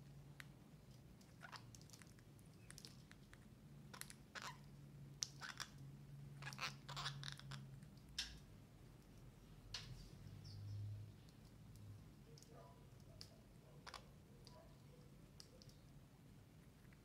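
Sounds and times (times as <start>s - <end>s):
faint low hum: 0.0s - 17.0s
birds pecking and chewing: 0.2s - 4.6s, 11.1s - 17.0s.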